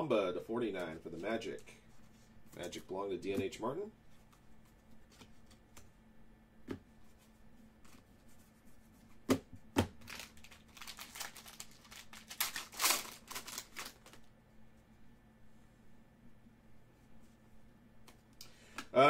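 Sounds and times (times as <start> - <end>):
foil wrapper crinkling and tearing: 10.0 - 14.2.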